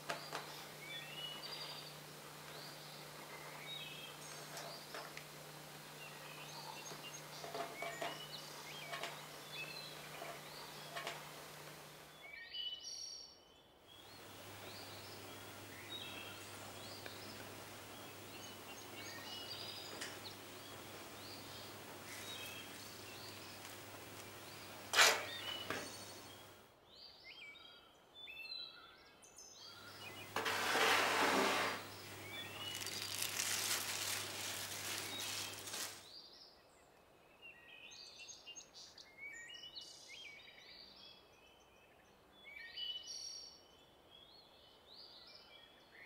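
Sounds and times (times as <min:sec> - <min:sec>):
low steady hum: 0:00.0 - 0:12.2, 0:14.0 - 0:26.7
faint birds chirping: 0:00.0 - 0:46.0.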